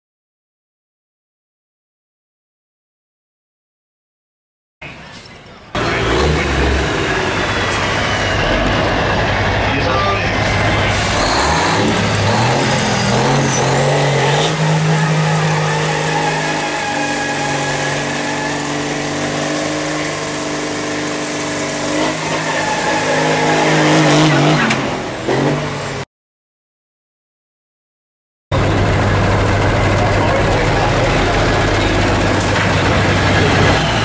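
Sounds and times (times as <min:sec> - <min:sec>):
diesel truck engine revving: 0:04.8 - 0:26.1, 0:28.5 - 0:34.0
turbocharger whistle: 0:10.2 - 0:25.1, 0:33.5 - 0:34.0.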